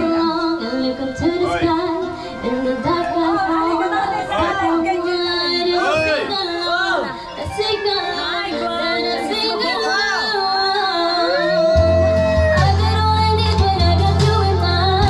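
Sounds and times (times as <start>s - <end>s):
karaoke backing track: 0.0s - 15.0s
woman singing into a microphone: 0.0s - 15.0s
heavy bass: 11.5s - 15.0s.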